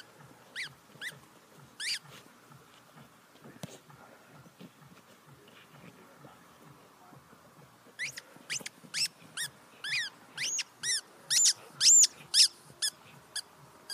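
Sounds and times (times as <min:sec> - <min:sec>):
rubber squeaky ball squeaking: 0:00.0 - 0:01.2, 0:01.8 - 0:02.1, 0:08.0 - 0:13.9.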